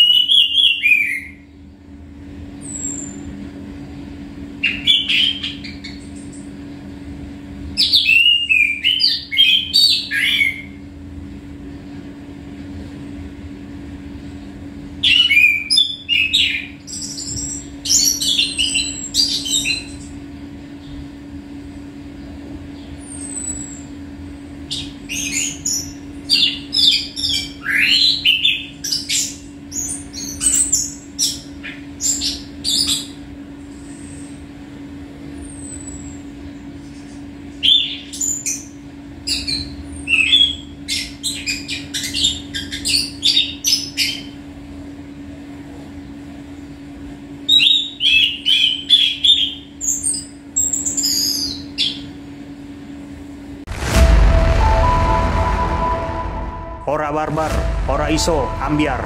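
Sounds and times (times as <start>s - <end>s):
steady low hum: 1.4s - 4.8s, 53.7s - 59.0s.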